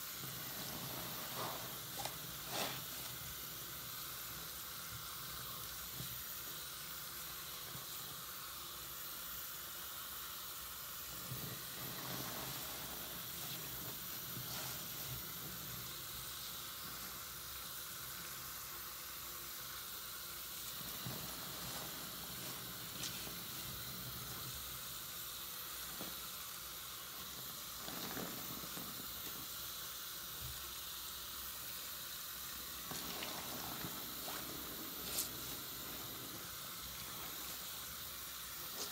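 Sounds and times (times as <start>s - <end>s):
foam fizzing: 0.0s - 38.9s
running tap water: 0.0s - 38.9s
wet sponge squishing: 0.2s - 3.3s, 20.7s - 24.5s, 32.8s - 37.8s.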